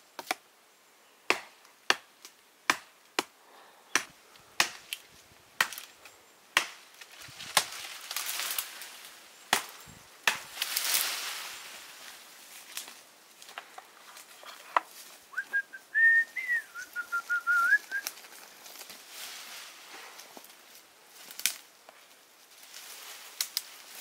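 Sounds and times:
rustling hiss: 0:00.0 - 0:24.0
blade chopping wood: 0:01.3 - 0:02.1, 0:02.7 - 0:03.3, 0:03.9 - 0:05.0, 0:05.6 - 0:05.9, 0:06.6 - 0:06.8, 0:09.5 - 0:10.6.

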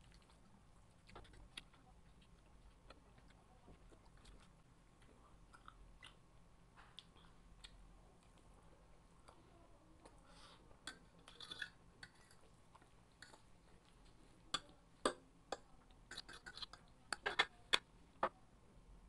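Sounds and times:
chewing: 0:00.0 - 0:09.4, 0:10.0 - 0:14.8, 0:15.5 - 0:17.9
metal fork scraping a plate: 0:11.3 - 0:12.4.

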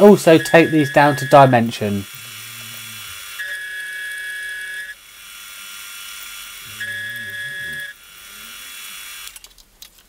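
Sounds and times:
milling machine cutting metal whine: 0:00.0 - 0:05.0.

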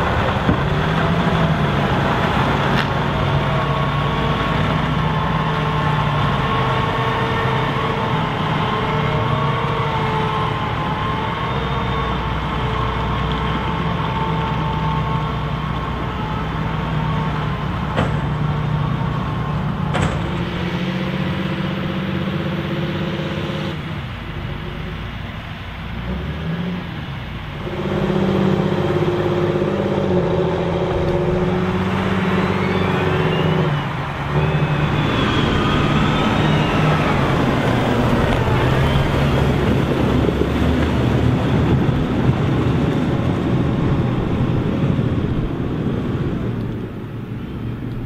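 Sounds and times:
tractor diesel engines under load: 0:00.0 - 0:48.0
sharp knocks: 0:17.9 - 0:18.6, 0:19.9 - 0:20.5.

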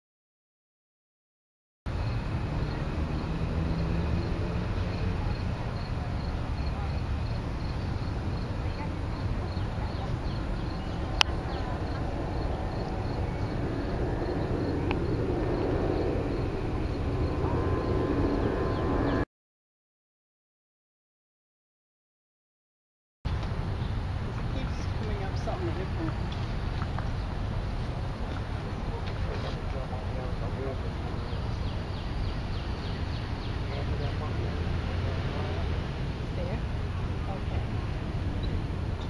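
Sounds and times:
insect chirping: 0:01.9 - 0:19.2
steady low rumble: 0:01.9 - 0:19.3.

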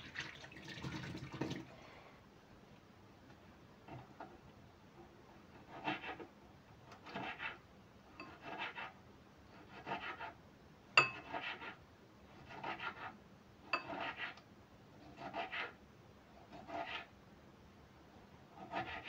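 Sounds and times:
knife slicing tomato: 0:05.5 - 0:07.6, 0:08.2 - 0:10.4, 0:11.0 - 0:14.4, 0:15.0 - 0:15.8, 0:16.4 - 0:17.1, 0:18.5 - 0:19.0.

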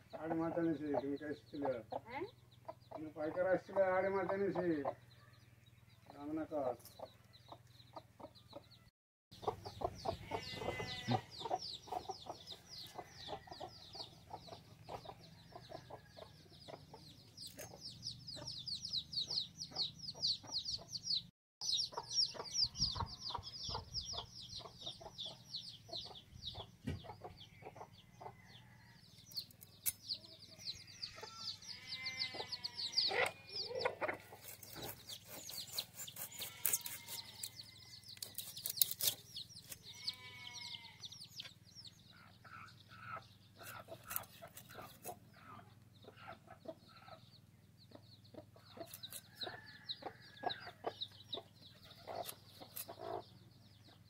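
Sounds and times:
hen clucking: 0:00.0 - 0:05.1, 0:06.0 - 0:08.8, 0:09.4 - 0:54.0
chicks cheeping: 0:00.0 - 0:54.0.

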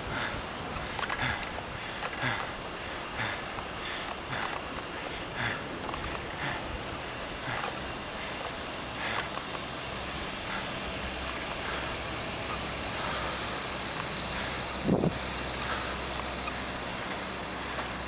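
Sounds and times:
vehicle engine hum: 0:00.0 - 0:18.0
wind and road noise: 0:00.0 - 0:18.0
faint high squeal: 0:09.6 - 0:16.8.

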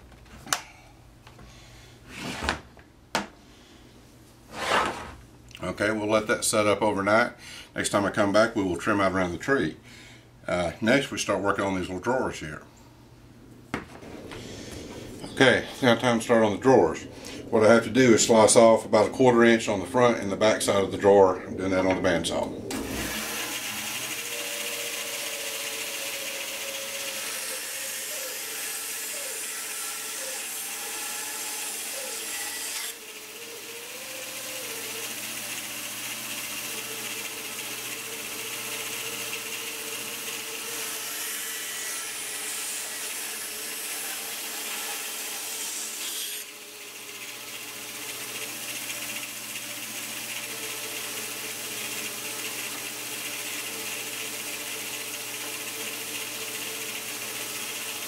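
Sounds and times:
band saw cutting wood: 0:14.2 - 0:58.0.

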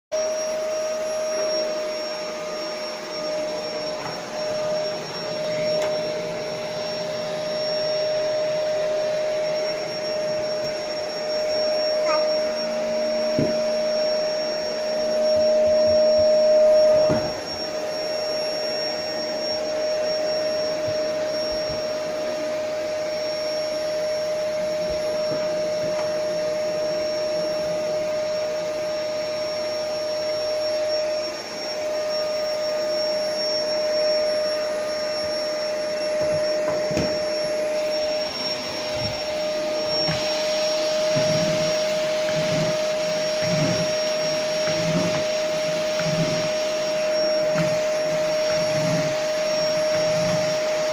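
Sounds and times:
vacuum cleaner running: 0:00.1 - 0:50.9
vacuum nozzle knocking: 0:38.9 - 0:50.9.

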